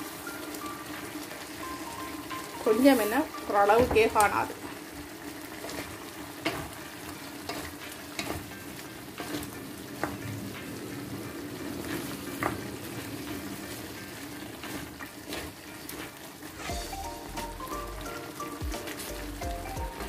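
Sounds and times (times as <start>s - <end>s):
curry sizzling in a pan: 0.0s - 20.0s
spatula scraping a pan: 5.6s - 10.1s, 13.3s - 16.9s.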